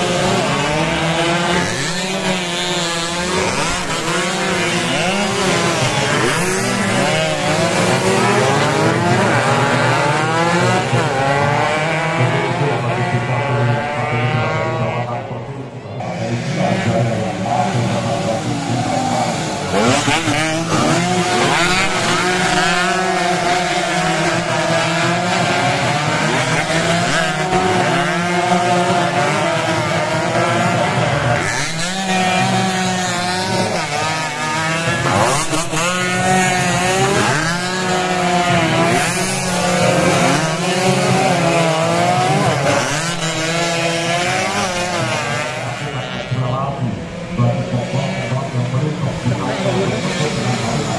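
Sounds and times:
motorcycles passing at high revs: 0:00.0 - 0:50.9.

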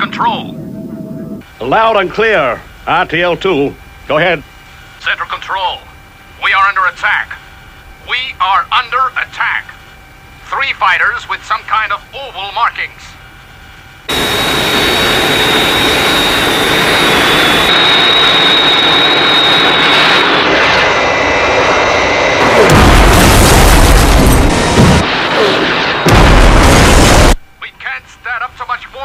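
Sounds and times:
jet engines roaring: 0:00.0 - 0:28.9
deep rumbling blasts: 0:20.2 - 0:27.4.

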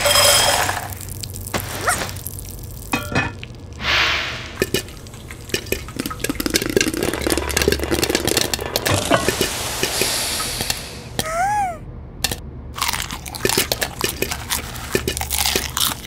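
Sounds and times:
popcorn popping: 0:00.0 - 0:03.7, 0:04.5 - 0:11.3, 0:12.2 - 0:16.0
short hiss: 0:03.8 - 0:04.6, 0:09.2 - 0:11.2.

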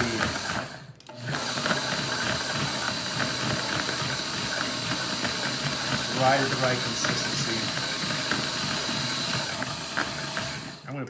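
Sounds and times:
blender running: 0:00.0 - 0:11.0.

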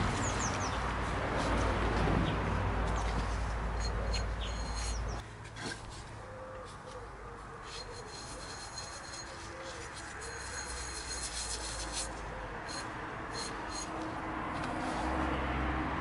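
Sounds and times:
damp sponge rubbing on ceramic: 0:07.7 - 0:12.8.

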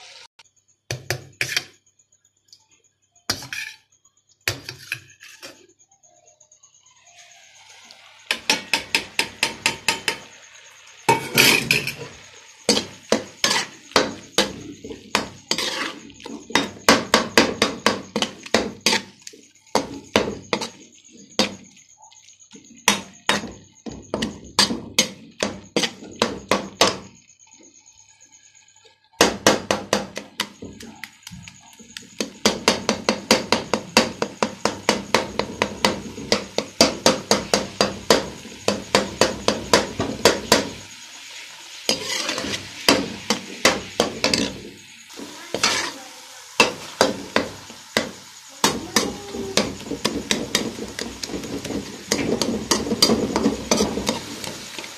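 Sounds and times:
steel spoon clanking in pan: 0:11.1 - 0:12.0, 0:12.7 - 0:20.8, 0:41.9 - 0:44.6, 0:45.5 - 0:46.0.

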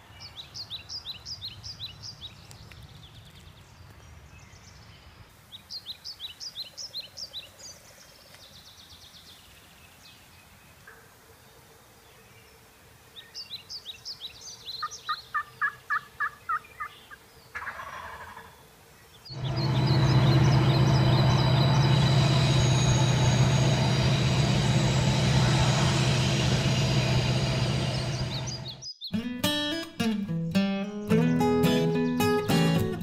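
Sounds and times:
turkey calling: 0:14.8 - 0:18.6.

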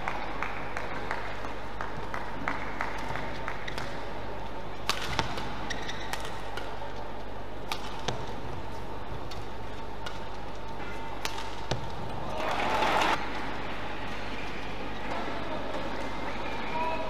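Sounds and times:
rackets striking shuttlecock: 0:01.9 - 0:13.5.

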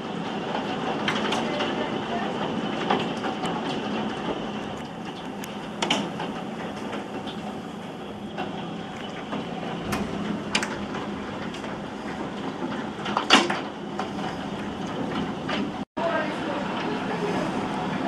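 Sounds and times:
heavy rain downpour: 0:00.0 - 0:13.6.

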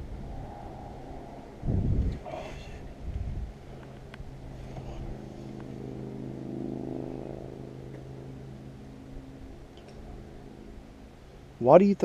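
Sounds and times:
electric trolling motor humming: 0:02.8 - 0:11.6.

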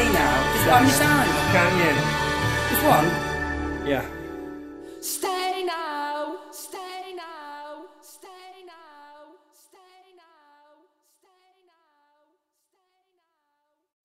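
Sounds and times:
woman singing a pop ballad: 0:00.0 - 0:03.4, 0:05.0 - 0:10.6.

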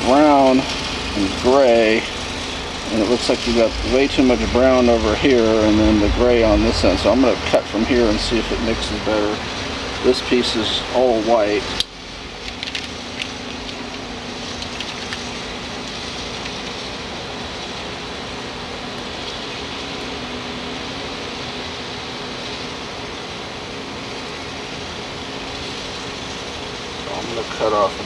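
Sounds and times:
steady mechanical hum: 0:00.0 - 0:28.0
gloved hands handling wrapper clicks: 0:12.4 - 0:13.8.

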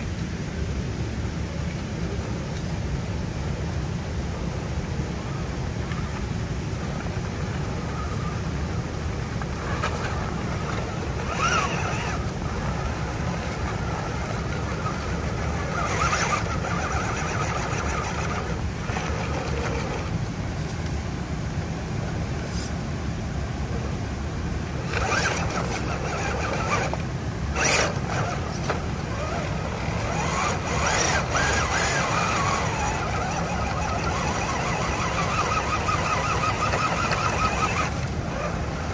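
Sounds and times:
electric motor whining: 0:09.5 - 0:20.1, 0:24.8 - 0:38.9.

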